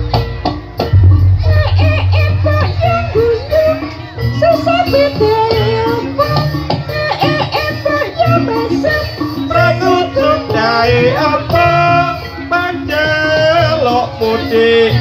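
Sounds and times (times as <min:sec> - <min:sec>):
steady drum beat: 0:00.0 - 0:05.8
accompanying instruments: 0:00.8 - 0:07.5
person singing long notes: 0:01.0 - 0:06.4.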